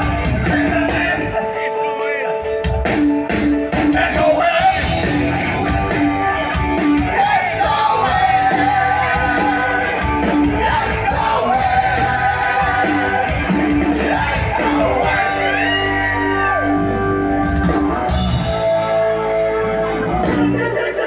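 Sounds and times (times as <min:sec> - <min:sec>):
man singing long notes: 0:00.0 - 0:02.6, 0:07.0 - 0:17.5
live rock band: 0:00.0 - 0:21.0.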